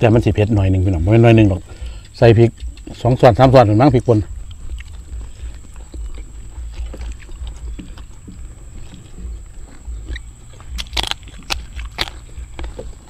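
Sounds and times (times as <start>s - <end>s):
people chewing: 0.0s - 13.0s
low rumble: 4.0s - 13.0s
crunching bite: 4.3s - 13.0s.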